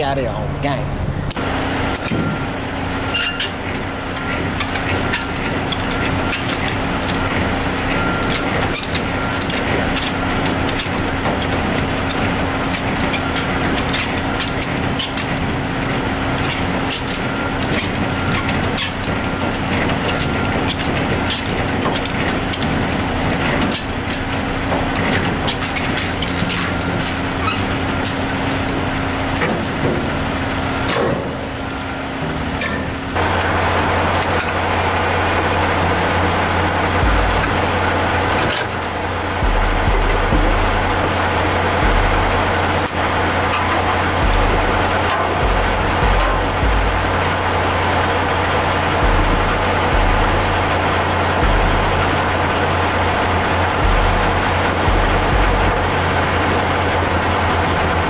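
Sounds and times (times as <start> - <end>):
diesel truck engine idling: 0.0 - 58.0
metallic clicks and clanks: 3.1 - 28.8, 36.9 - 56.2.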